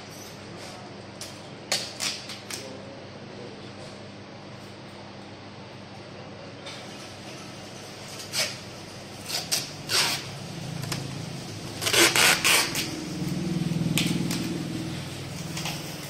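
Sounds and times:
packing tape pulled off roll: 8.1 - 8.6, 9.2 - 11.0, 11.8 - 13.0
low steady hum: 8.8 - 16.0.

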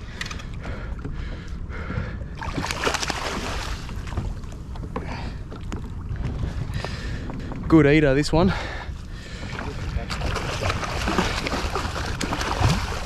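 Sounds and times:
wind rumble on microphone: 0.0 - 13.0
fish thrashing and water splashing: 2.2 - 7.1, 9.2 - 13.0.

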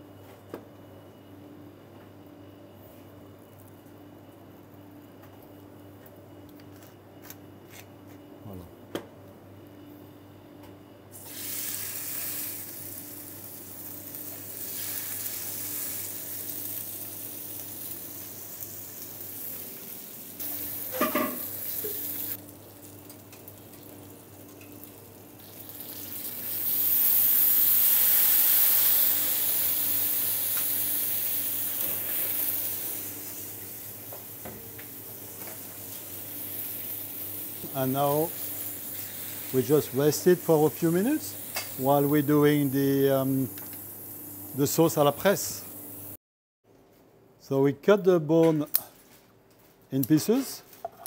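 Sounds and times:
flaming alcohol hissing: 11.1 - 22.4, 25.5 - 39.8
meat sizzling in a frying pan: 11.2 - 46.1.

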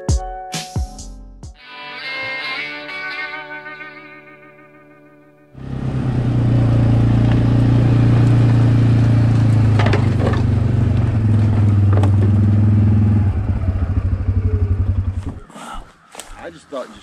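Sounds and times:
heavy vehicle engine running: 5.6 - 15.4.

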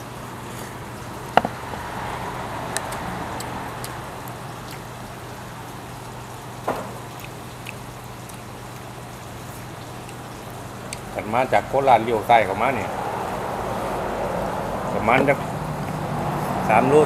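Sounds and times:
broth bubbling with hiss: 0.0 - 17.0
sharp knocks: 6.6 - 7.4.

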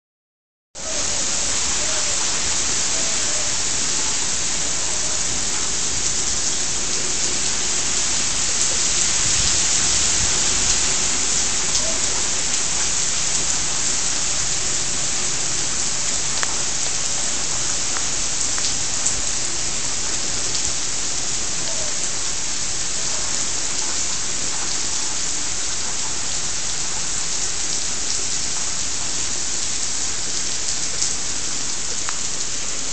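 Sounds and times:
steady rain falling: 0.8 - 32.9
close raindrop ticks: 11.6 - 19.4, 30.4 - 31.2.

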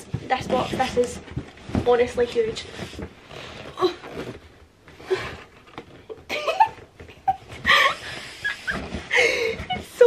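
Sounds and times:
woman laughing and giggling: 6.2 - 9.9.

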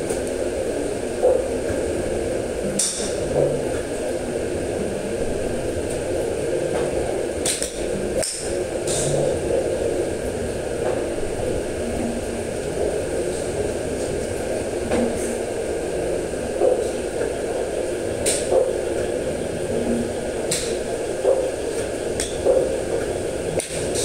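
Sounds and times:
steady background hum: 0.0 - 24.0
golf clubs striking balls: 2.8 - 3.6, 6.7 - 9.1, 20.5 - 23.8.

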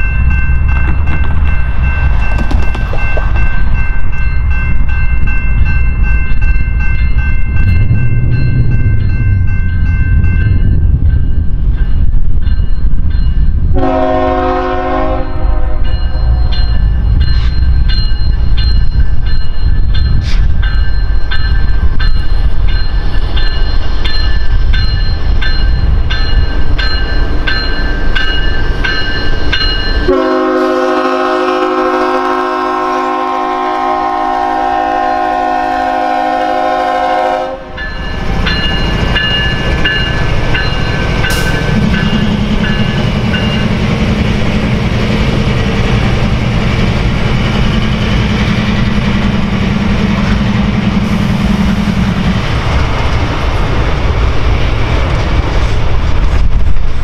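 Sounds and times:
locomotives rumbling past: 0.0 - 12.4, 21.7 - 57.0
locomotive air horn: 13.7 - 15.8, 30.1 - 37.8
bell dinging: 37.8 - 43.9.

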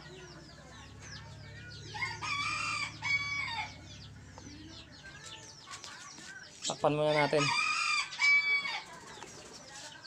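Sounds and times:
rooster crowing: 2.0 - 3.8, 7.1 - 8.8.

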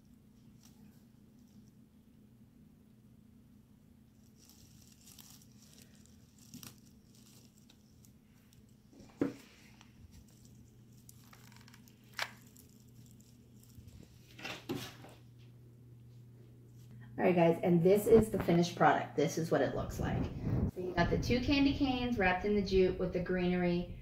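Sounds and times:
artificial greenery rustling: 0.0 - 2.1, 4.0 - 15.4
low steady hum: 0.0 - 24.0.

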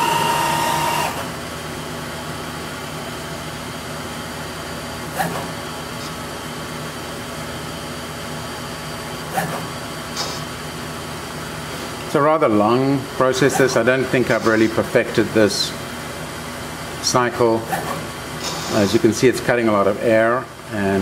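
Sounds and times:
lathe humming and whining: 0.0 - 21.0.

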